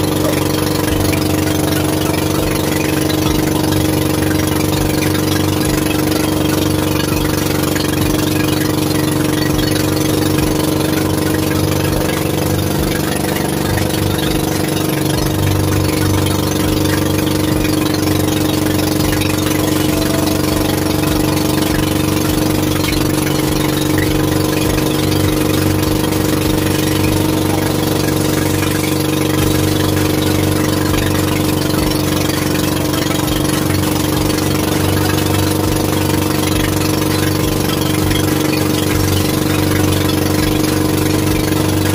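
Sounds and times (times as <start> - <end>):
boat engine humming: 0.0 - 41.9.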